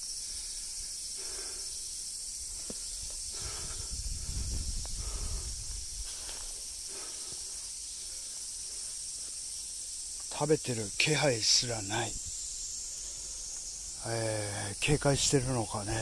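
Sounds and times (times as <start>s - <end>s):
high-pitched insect chorus: 0.0s - 16.0s
low rumble on microphone: 2.9s - 6.6s
rustling steps in grass: 4.6s - 9.5s.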